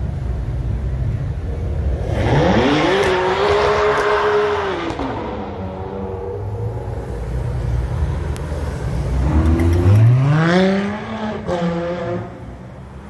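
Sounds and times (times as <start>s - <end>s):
car engine revving: 1.9s - 12.7s.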